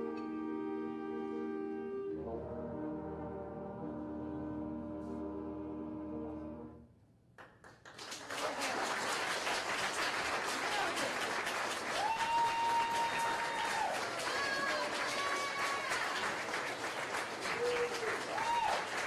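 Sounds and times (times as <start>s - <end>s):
audience applause: 7.6s - 19.0s.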